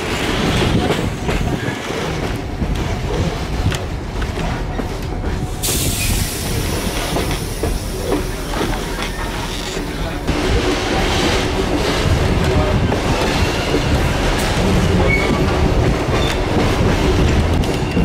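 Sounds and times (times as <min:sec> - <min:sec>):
train rumble: 0:00.0 - 0:18.0
hiss: 0:05.6 - 0:08.5.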